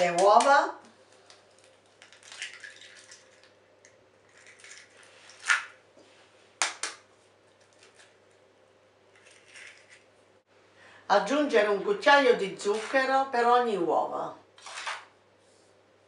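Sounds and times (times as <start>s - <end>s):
eggshells cracking: 1.1s - 5.8s.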